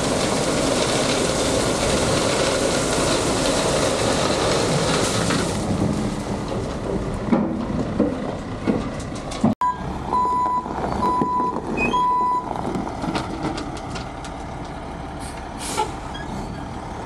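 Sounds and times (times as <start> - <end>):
heavy machinery engine running: 0.0 - 17.0
knocks and clatters: 2.0 - 9.6, 12.6 - 14.8
reversing alarm beeping: 9.6 - 12.5.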